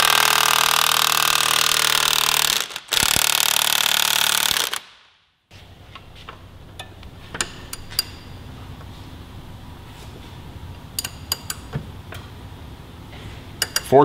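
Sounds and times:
impact wrench hammering: 0:00.0 - 0:04.8, 0:11.0 - 0:11.8, 0:13.6 - 0:14.0.

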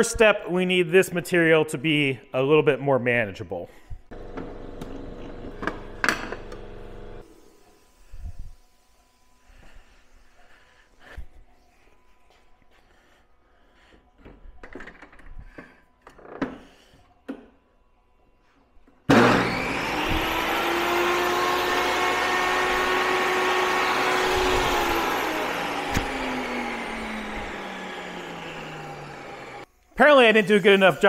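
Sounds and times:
table saw cutting plastic: 0:04.1 - 0:07.5, 0:19.1 - 0:29.7.

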